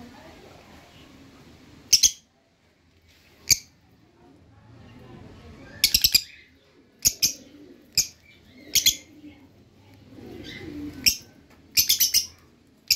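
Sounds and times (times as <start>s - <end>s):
birds chirping high-pitched: 1.9s - 2.3s, 3.4s - 3.8s, 5.6s - 9.1s, 10.4s - 12.9s.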